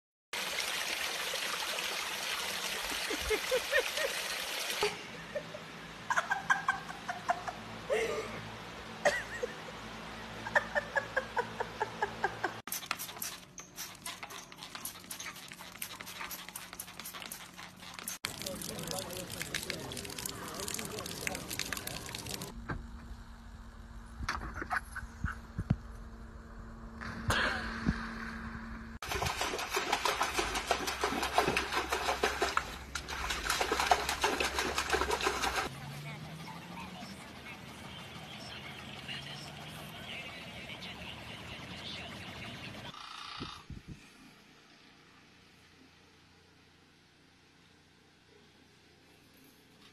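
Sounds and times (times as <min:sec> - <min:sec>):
dog paddling splashes: 0:17.7 - 0:22.5, 0:29.0 - 0:36.4.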